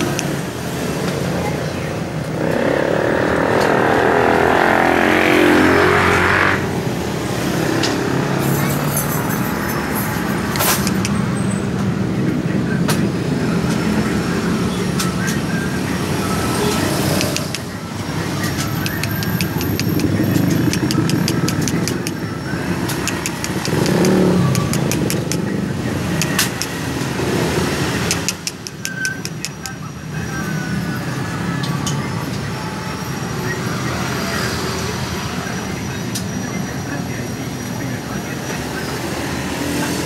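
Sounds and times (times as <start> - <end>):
engine rumbling: 0.0 - 31.4
rapid sharp clicks: 17.2 - 17.7, 18.6 - 22.2, 23.0 - 25.5, 26.2 - 26.8, 28.1 - 29.8.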